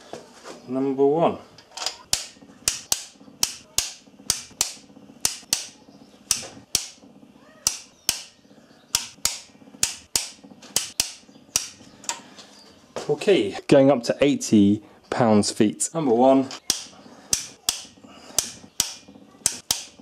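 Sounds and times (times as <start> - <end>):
ratchet wrench clicking: 1.8 - 7.0, 16.6 - 20.0.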